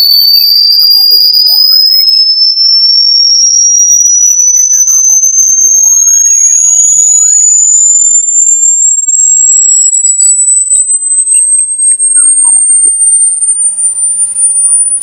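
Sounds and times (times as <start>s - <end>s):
high-pitched electronic tone: 0.0s - 15.0s
short chirps and ticks: 0.0s - 15.0s
sweeping electronic glides: 11.9s - 15.0s.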